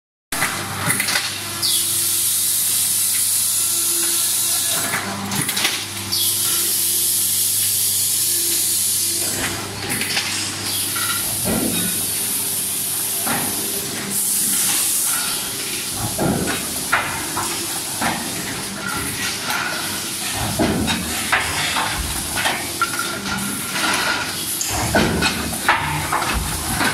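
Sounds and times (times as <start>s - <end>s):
machine hum: 0.8s - 26.9s
machinery knocks and clatter: 15.9s - 26.9s.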